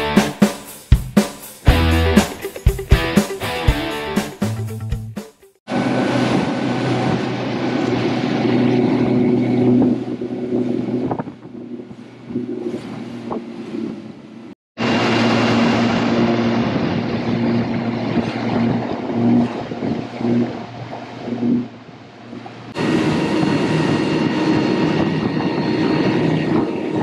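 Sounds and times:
rushing wind and water: 0:05.7 - 0:27.0.

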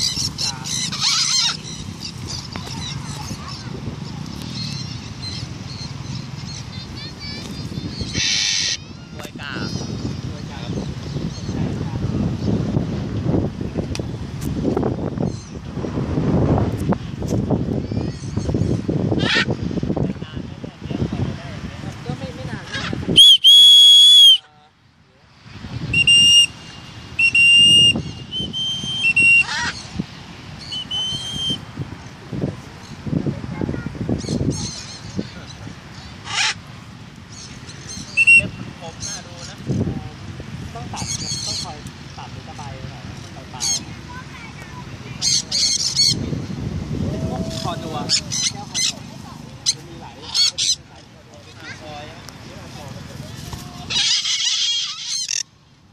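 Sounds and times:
parrots squawking: 0:00.0 - 0:03.6, 0:07.9 - 0:09.8, 0:19.2 - 0:19.6, 0:22.6 - 0:23.3, 0:27.2 - 0:29.9, 0:36.0 - 0:36.6, 0:43.5 - 0:43.9, 0:45.2 - 0:46.2, 0:47.4 - 0:51.1, 0:53.9 - 0:55.5
whistle blasts: 0:23.2 - 0:24.4, 0:25.9 - 0:26.6, 0:27.2 - 0:29.5, 0:30.7 - 0:31.6, 0:38.2 - 0:38.5.

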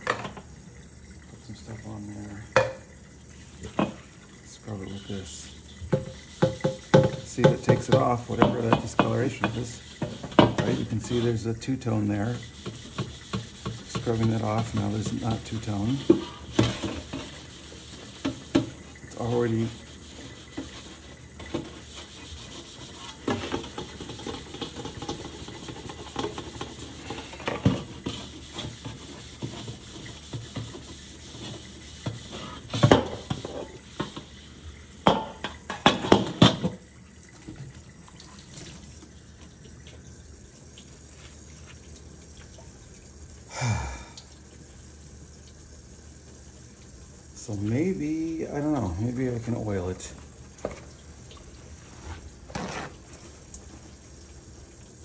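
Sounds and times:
tap water running onto wok: 0:00.0 - 0:55.0
wok knocking against sink: 0:05.9 - 0:10.8
sponge scrubbing steel wok: 0:06.1 - 0:34.3.

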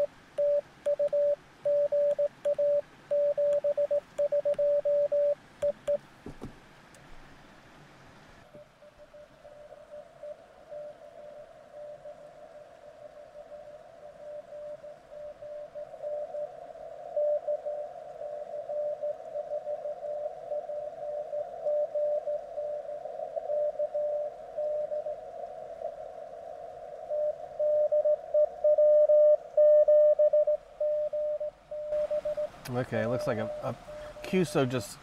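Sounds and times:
morse code beeping tone: 0:00.0 - 0:06.0, 0:28.8 - 0:32.5
radio band hiss: 0:32.0 - 0:35.0.

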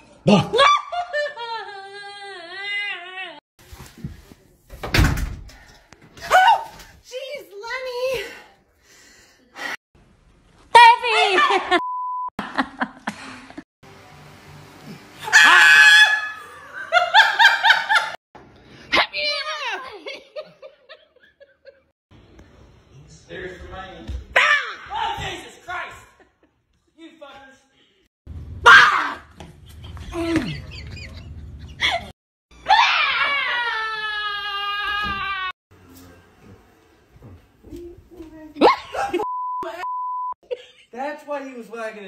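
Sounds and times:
woman screaming: 0:06.2 - 0:06.7, 0:15.2 - 0:16.5, 0:32.6 - 0:35.6
short steady beep: 0:11.8 - 0:12.3, 0:39.3 - 0:40.4
long high scream: 0:15.2 - 0:16.5
short loud yells: 0:28.6 - 0:29.3.

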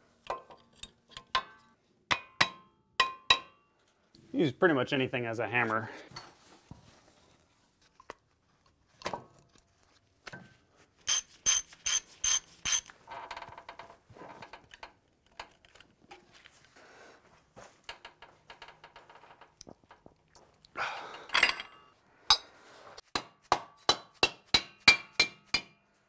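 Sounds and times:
ratchet wrench clicking: 0:11.1 - 0:12.9.

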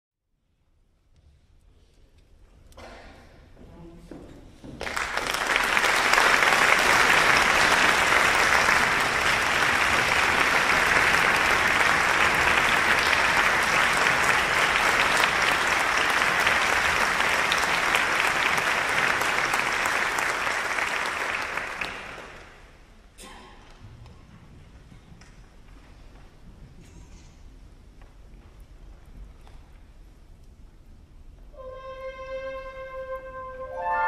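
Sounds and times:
audience applauding: 0:04.8 - 0:22.8.

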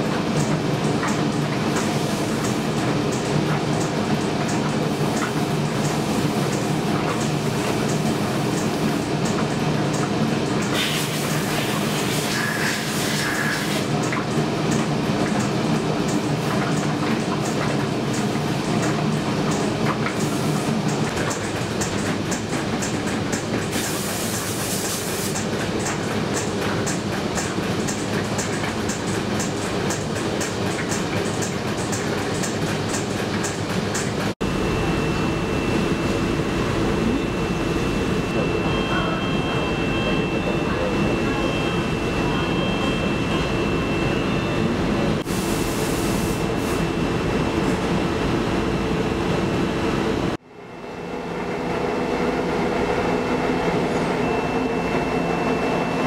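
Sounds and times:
factory machinery hum: 0:00.0 - 0:56.0
higher whine: 0:34.4 - 0:45.2
thin steady whine: 0:34.4 - 0:47.4.

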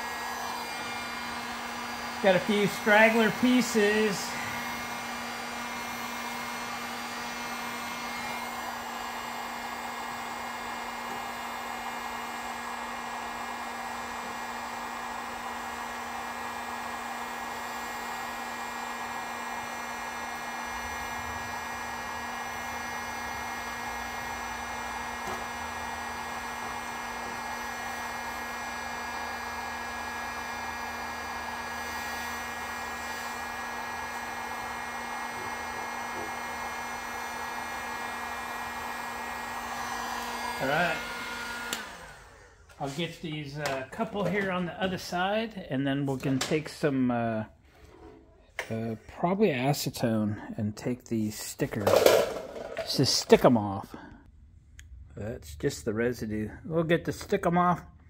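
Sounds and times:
heat gun fan rush: 0:00.0 - 0:45.4.

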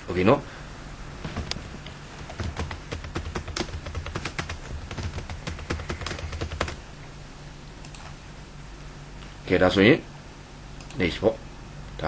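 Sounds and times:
low steady hum: 0:00.0 - 0:12.0
computer keyboard typing: 0:01.4 - 0:06.9.

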